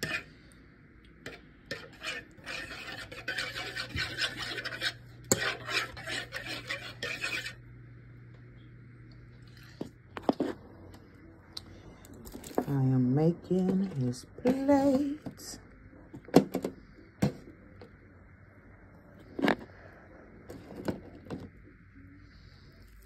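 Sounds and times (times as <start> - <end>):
spoon stirring and scraping pot: 0.0 - 0.3, 1.1 - 7.6.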